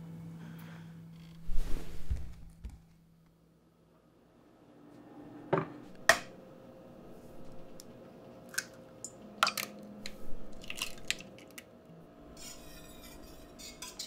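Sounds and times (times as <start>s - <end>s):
eggs cracking against metal bowl: 8.5s - 11.7s.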